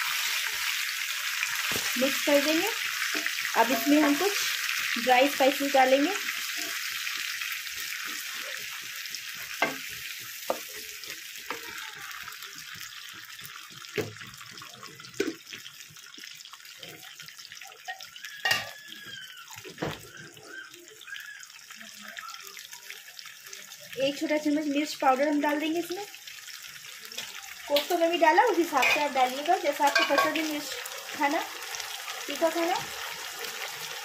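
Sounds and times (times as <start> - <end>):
sauce sizzling in hot oil: 0.0 - 34.0.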